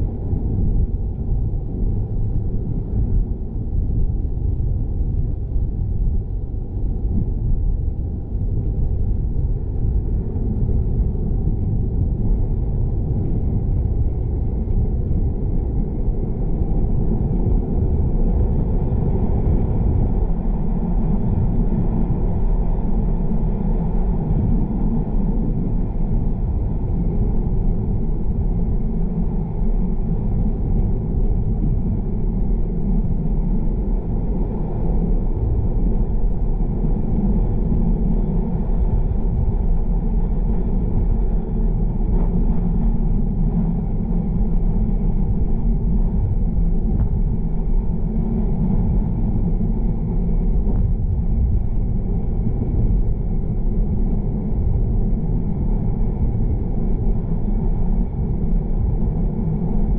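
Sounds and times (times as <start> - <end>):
car engine and tyres rumbling: 0.0 - 59.9.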